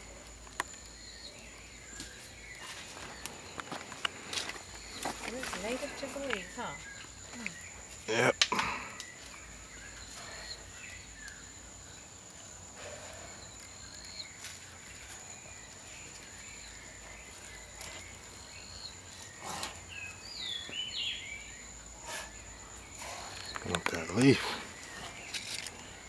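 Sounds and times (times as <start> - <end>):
bird chirps: 12.8 - 26.0.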